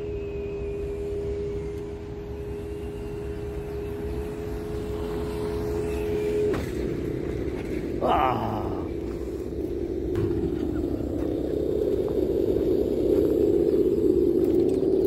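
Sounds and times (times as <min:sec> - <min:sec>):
toy car motor droning: 0:00.0 - 0:15.0
low rumble: 0:06.3 - 0:15.0.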